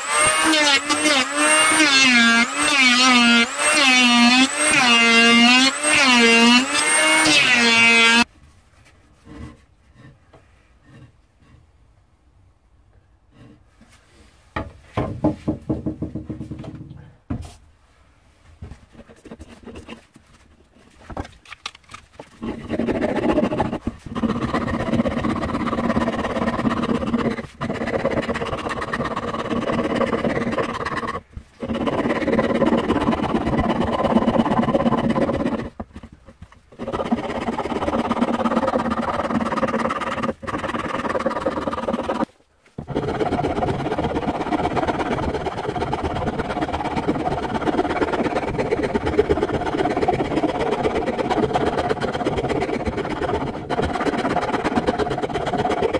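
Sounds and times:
hand rasp scraping wood: 0:00.0 - 0:08.3, 0:18.9 - 0:21.0, 0:22.2 - 0:55.9.

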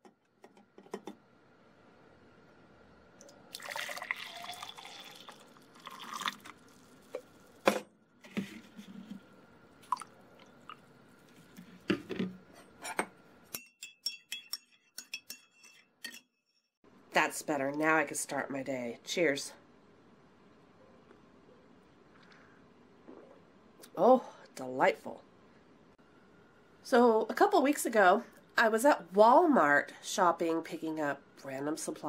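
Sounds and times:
coffee pouring into mug: 0:03.2 - 0:07.6, 0:09.8 - 0:10.8
metal spoon clinking in mug: 0:13.6 - 0:16.3.

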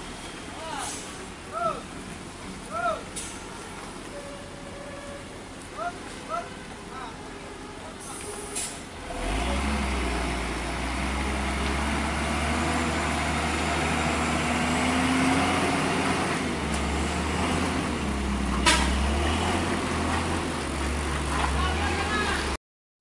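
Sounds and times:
truck diesel engine under load: 0:07.5 - 0:22.6.

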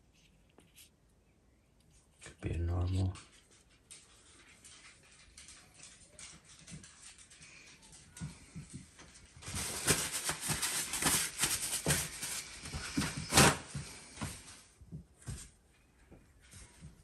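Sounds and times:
handling rustles and knocks: 0:08.1 - 0:17.0.

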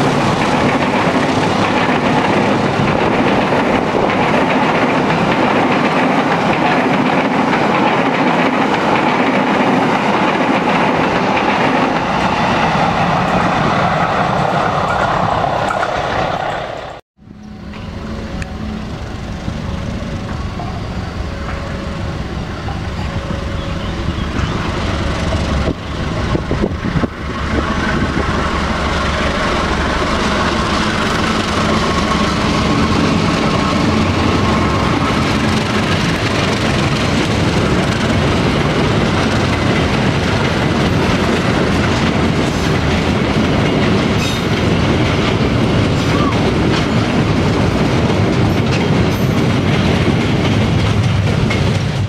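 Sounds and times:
train wheels clacking on rails: 0:00.0 - 0:17.0, 0:17.6 - 0:52.0
diesel locomotive engine running: 0:00.0 - 0:52.0
steady high tone: 0:17.2 - 0:26.4.

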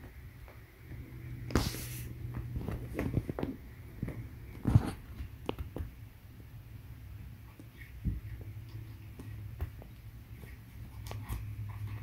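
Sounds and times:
steady low hum: 0:00.0 - 0:12.0
cat rubbing on carpet: 0:01.5 - 0:03.2.

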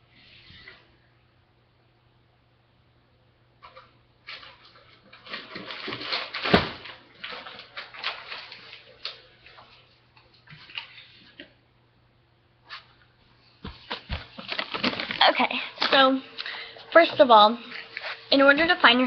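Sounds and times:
objects rustling and clattering: 0:03.6 - 0:11.6, 0:12.7 - 0:19.0.

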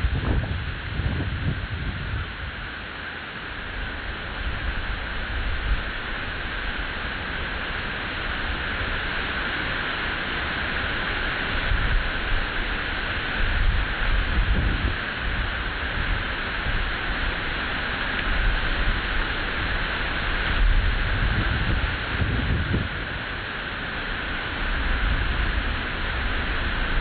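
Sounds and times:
wind gusting on microphone: 0:00.0 - 0:02.9, 0:11.5 - 0:27.0
steady outdoor hiss: 0:00.0 - 0:27.0.

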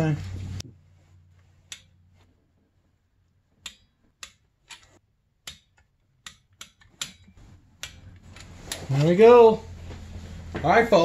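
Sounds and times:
wrench clicking: 0:03.6 - 0:08.8.

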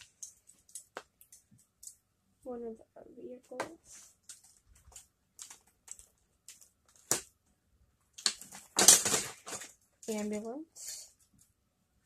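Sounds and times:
plastic packaging crackling: 0:08.2 - 0:10.2.

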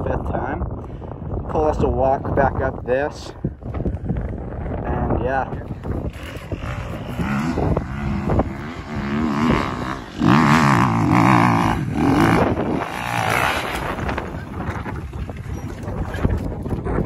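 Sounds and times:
dirt bike engine revving: 0:05.9 - 0:15.8.

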